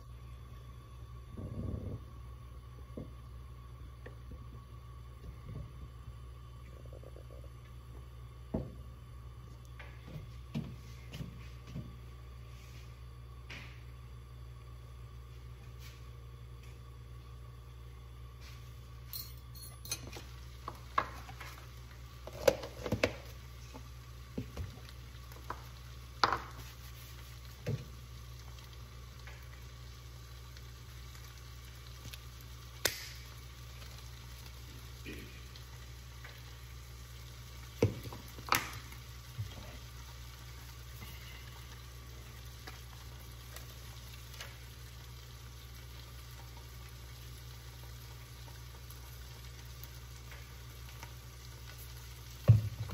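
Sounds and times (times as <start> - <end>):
low hum: 0.0 - 22.2
bacon sizzling in a pan: 20.0 - 52.9.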